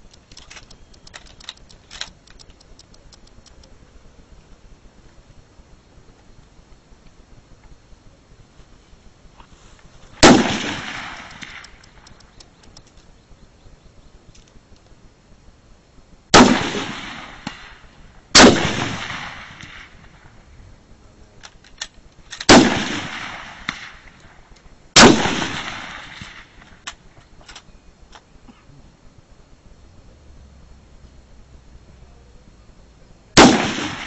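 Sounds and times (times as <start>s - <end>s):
light clicks: 0.0s - 3.8s, 11.2s - 13.2s
rifle shots with echo: 10.2s - 12.1s, 16.3s - 20.4s, 22.3s - 24.3s, 25.0s - 26.8s, 33.4s - 34.0s.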